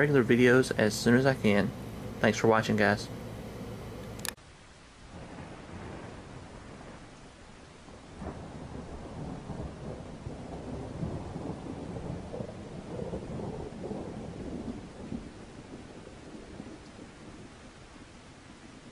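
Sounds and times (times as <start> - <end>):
rain: 0.0 - 18.9
rolling thunder: 5.1 - 18.9.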